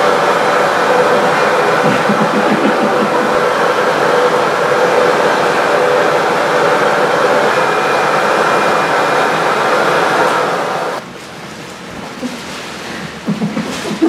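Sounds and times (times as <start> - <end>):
vacuum cleaner running: 0.0 - 11.0.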